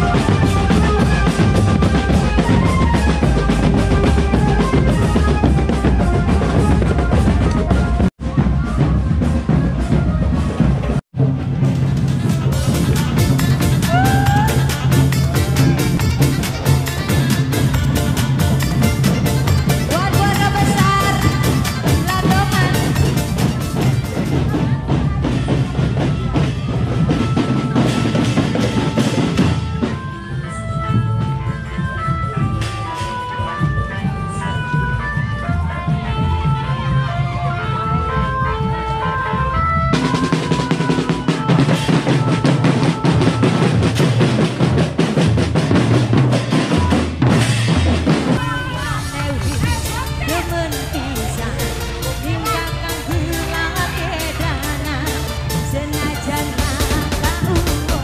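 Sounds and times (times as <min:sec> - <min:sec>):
bass drums pounding: 0:00.0 - 0:29.6, 0:41.8 - 0:58.0
marching band melody: 0:00.0 - 0:58.0
snare and tenor drums: 0:00.0 - 0:58.0
cymbals crashing: 0:46.2 - 0:58.0.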